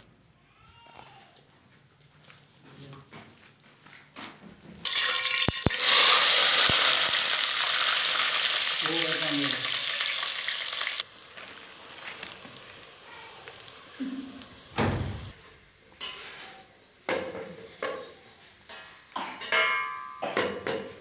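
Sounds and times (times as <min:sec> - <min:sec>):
onions sizzling in hot oil: 0:04.8 - 0:16.4.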